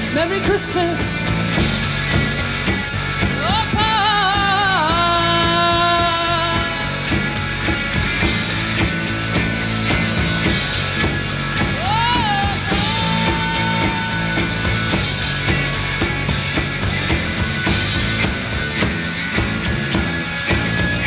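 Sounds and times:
woman singing: 0.0 - 1.3, 3.4 - 7.3, 11.8 - 15.3
bass: 0.0 - 21.0
electric guitars: 0.0 - 21.0
steady drum beat: 0.0 - 21.0.

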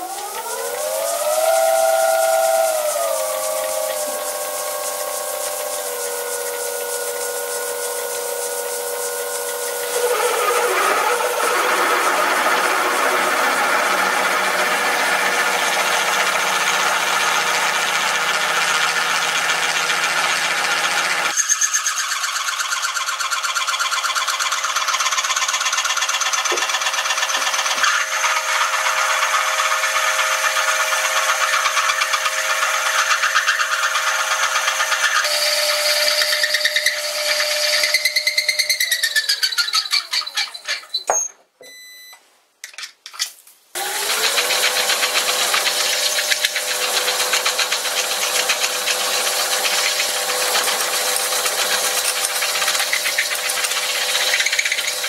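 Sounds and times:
lathe whine: 0.0 - 40.6, 43.8 - 55.0
drill grinding steel: 0.0 - 41.1, 43.8 - 55.0.

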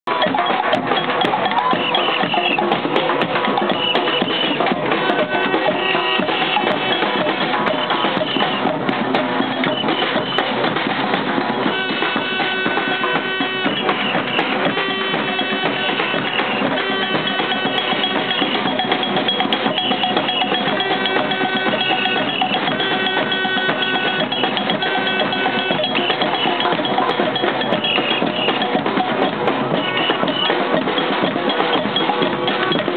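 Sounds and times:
clanking cowbell: 0.1 - 32.9
snare drum: 0.1 - 32.9.

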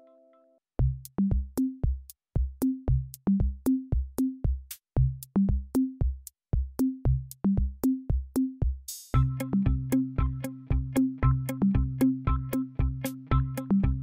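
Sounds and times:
electronic music with drum-machine beat: 0.8 - 14.0.

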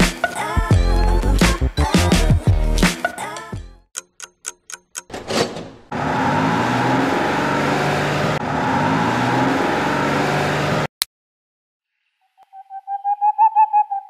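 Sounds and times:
short ticks: 4.0 - 5.1
sharp click: 4.0 - 5.7.

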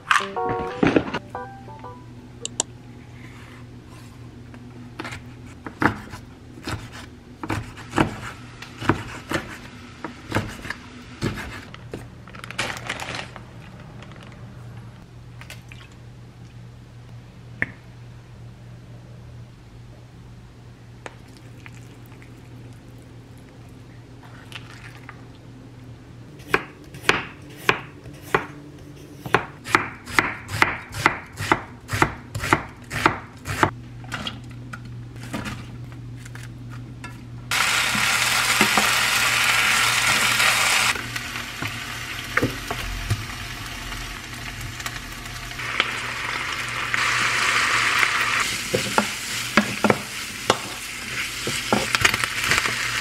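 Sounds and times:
low hum: 0.0 - 5.0, 41.0 - 47.0
knife chopping vegetables: 5.0 - 11.7, 26.4 - 33.8
vegetables sizzling in hot oil: 37.5 - 53.0.

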